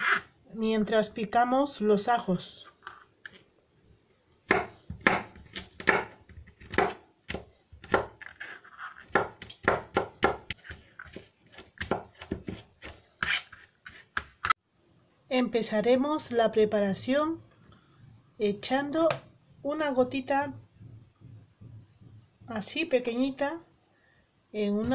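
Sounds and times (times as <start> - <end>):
knife chopping on plastic board: 4.4 - 8.2, 9.1 - 14.6.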